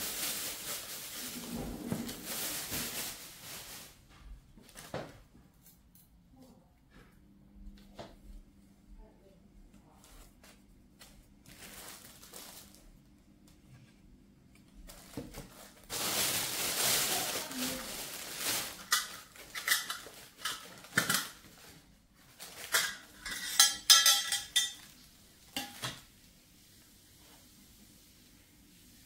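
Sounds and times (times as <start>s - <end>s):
dishes and cutlery clinking: 18.9s - 21.4s, 22.6s - 26.0s.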